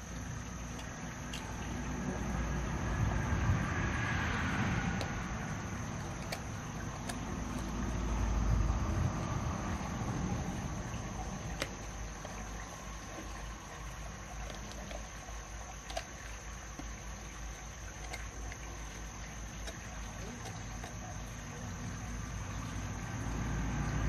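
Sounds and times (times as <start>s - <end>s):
insect trilling: 0.0s - 24.0s
low rumble: 1.4s - 13.8s.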